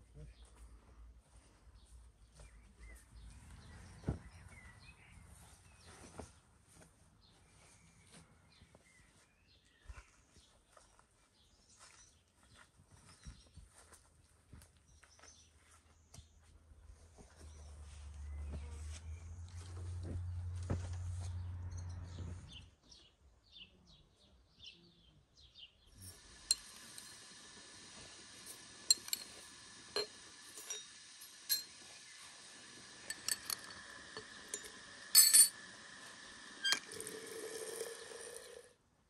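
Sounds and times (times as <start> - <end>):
teaspoon clinking on porcelain: 26.0 - 27.3, 28.4 - 31.9, 33.0 - 35.6
water pouring into teapot: 26.0 - 38.8.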